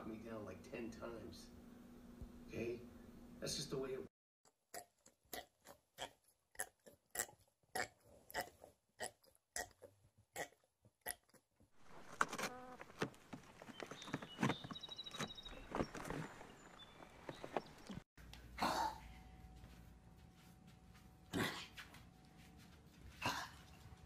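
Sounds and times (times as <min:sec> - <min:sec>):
scuffling: 0:11.8 - 0:18.0.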